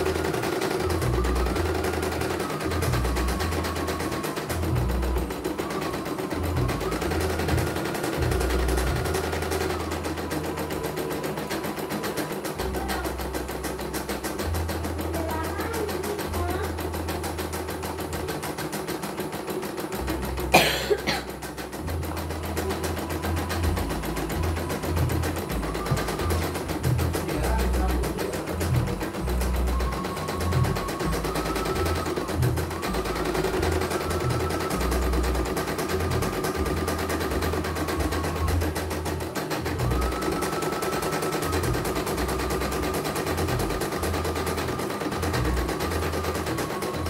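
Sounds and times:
embroidery machine stitching: 0:00.0 - 0:47.0
cough-like noise: 0:20.5 - 0:21.3.

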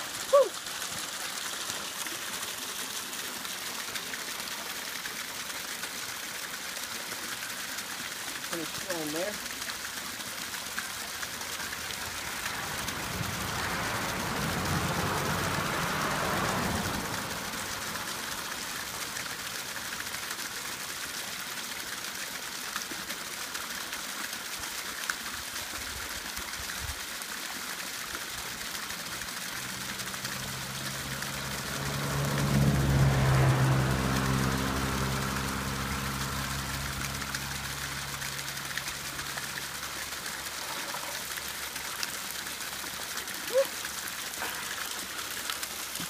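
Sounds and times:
small stream running: 0:00.0 - 0:46.0
vehicle engine: 0:08.5 - 0:21.6, 0:27.9 - 0:46.0
water pouring into plastic jug: 0:24.3 - 0:46.0.

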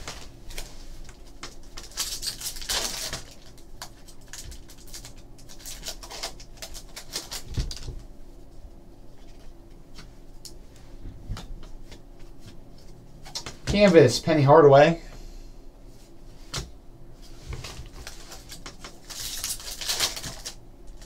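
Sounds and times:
foil pack crinkling: 0:00.1 - 0:08.0, 0:17.6 - 0:21.0.

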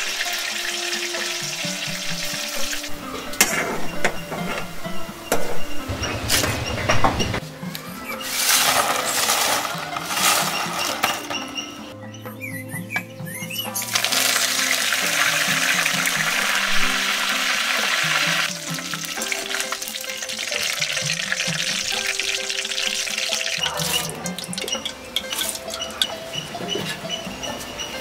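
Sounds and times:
leaves sizzling in hot oil: 0:00.0 - 0:03.6, 0:08.1 - 0:11.3, 0:13.8 - 0:26.2
background music: 0:00.0 - 0:28.0.

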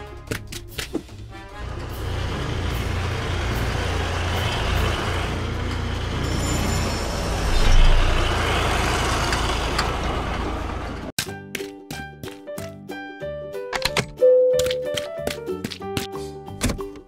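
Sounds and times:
truck engine rumbling: 0:00.9 - 0:11.1.

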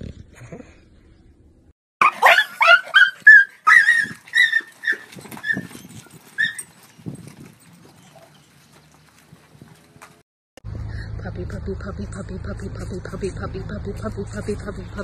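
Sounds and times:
puppy yipping and whining: 0:02.0 - 0:06.9.

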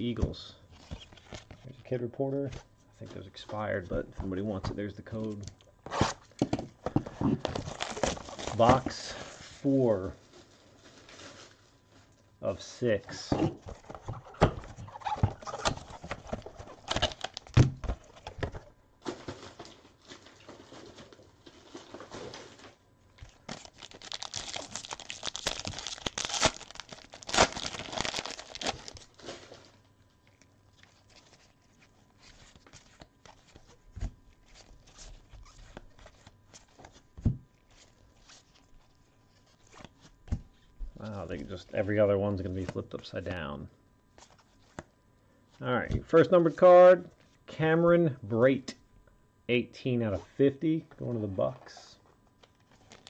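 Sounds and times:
plastic wrapper crinkling and tearing: 0:07.4 - 0:08.8, 0:13.8 - 0:18.5, 0:19.1 - 0:37.0, 0:52.4 - 0:53.0.

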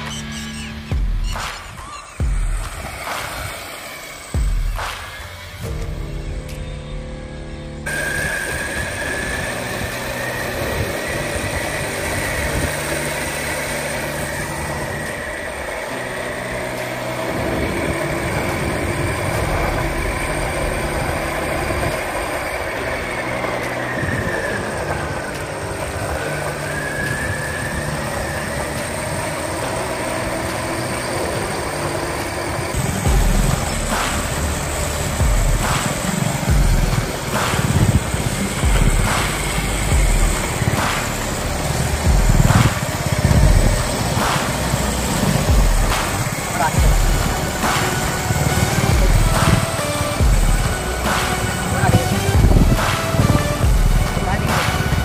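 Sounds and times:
electric motor whining: 0:00.0 - 0:55.0
wheels rolling on asphalt: 0:00.0 - 0:55.0.

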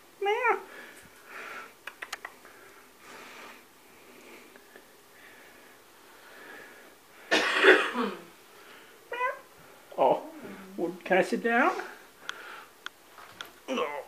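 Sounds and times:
small clicks: 0:01.8 - 0:02.4
person coughing: 0:07.3 - 0:08.3.

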